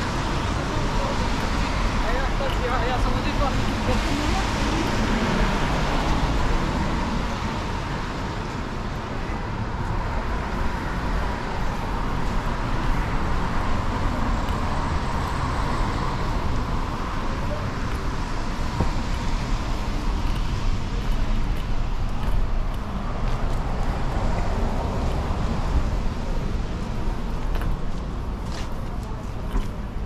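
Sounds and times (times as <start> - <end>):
traffic on wet roads: 0.0 - 30.0.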